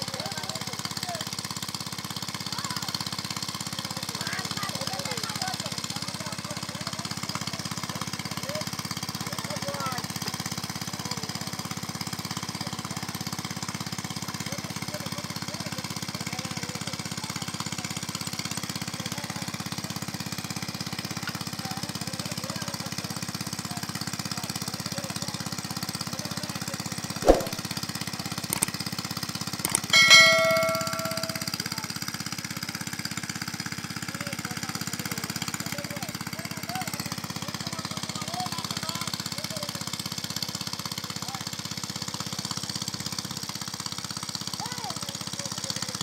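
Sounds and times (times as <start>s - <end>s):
small engine running: 0.0s - 27.6s, 28.2s - 46.0s
sharp knock: 27.2s - 27.6s, 29.7s - 31.5s
short metallic ring: 27.2s - 27.6s, 29.7s - 31.6s.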